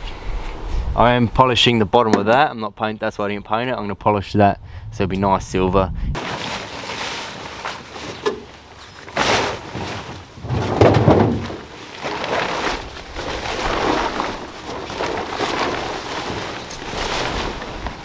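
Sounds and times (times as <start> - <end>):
plastic tarp rustling: 6.2 - 18.0.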